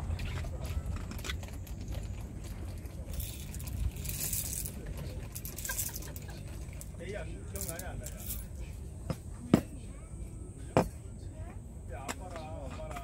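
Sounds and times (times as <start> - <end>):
coffee beans rattling: 2.6 - 7.0, 7.6 - 8.5.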